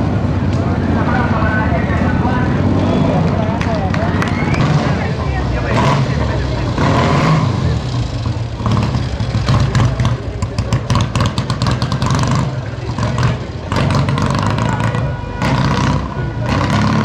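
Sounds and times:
motorcycle engines blipping: 0:00.0 - 0:17.0.

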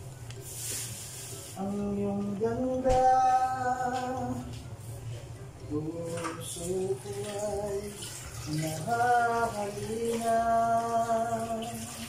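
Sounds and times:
person singing unaccompanied: 0:01.6 - 0:04.6, 0:05.6 - 0:12.0.

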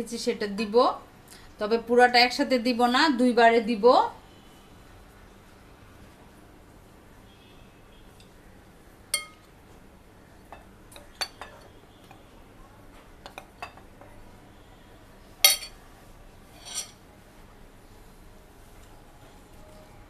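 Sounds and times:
metal spoon clinking on glass bowl: 0:09.1 - 0:09.5, 0:15.4 - 0:15.8, 0:16.6 - 0:17.0.

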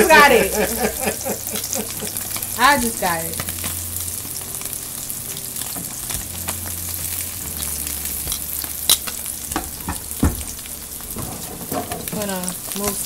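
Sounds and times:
cheese sizzling in hot oil: 0:00.0 - 0:13.0
heavy knock: 0:09.6 - 0:10.5.

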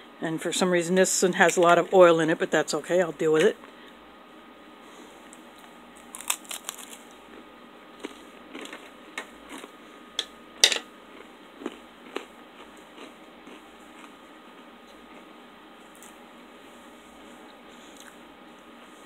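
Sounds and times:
plastic pouches crinkling: 0:06.0 - 0:07.1.

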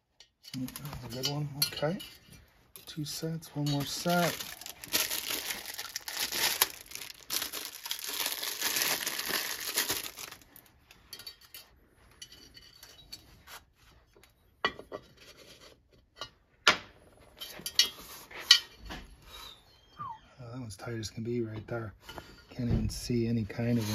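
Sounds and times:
plastic packaging crinkling: 0:03.7 - 0:10.6.

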